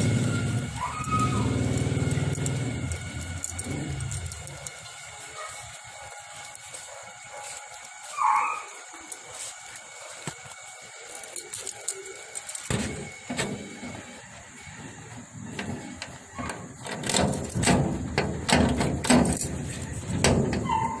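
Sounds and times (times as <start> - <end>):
metal door rattling: 0.0 - 4.9, 11.4 - 14.0, 15.5 - 21.0
keys jangling in lock: 0.0 - 13.7, 16.4 - 21.0.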